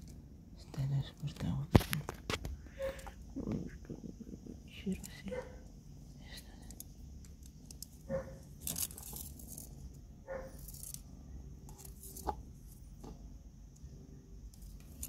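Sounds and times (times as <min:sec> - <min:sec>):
fingers rustling and scraping cord: 0:04.9 - 0:15.0.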